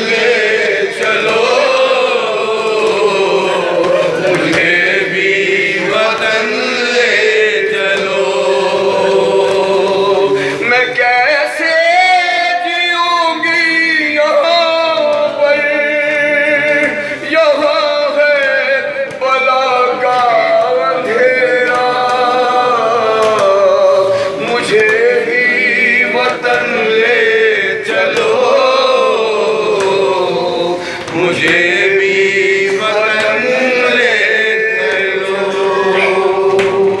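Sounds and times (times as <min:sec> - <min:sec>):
man chanting a lament: 0:00.0 - 0:37.0.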